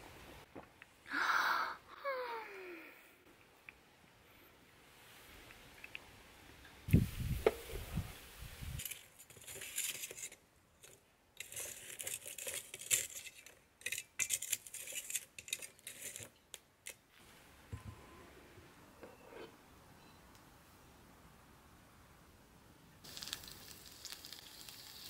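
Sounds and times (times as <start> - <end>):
charcoal clinking against tongs: 8.8 - 17.0.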